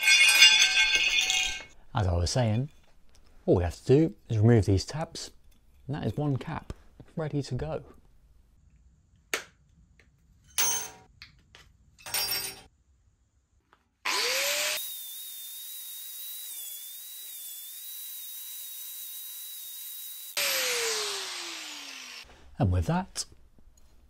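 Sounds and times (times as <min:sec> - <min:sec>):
angle grinder whining: 0:14.1 - 0:22.3.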